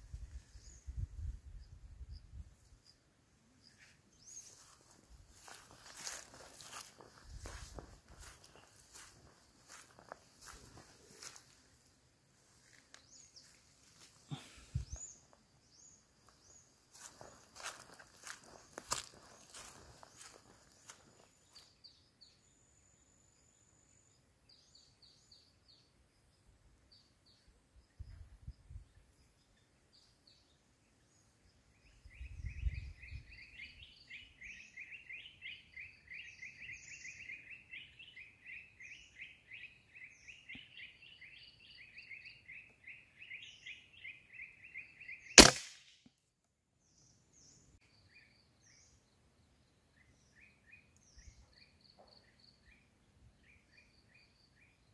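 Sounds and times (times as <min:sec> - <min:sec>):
small birds chirping: 0:00.0 - 0:45.5, 0:46.8 - 0:54.9
rifle shot: 0:45.4 - 0:45.9.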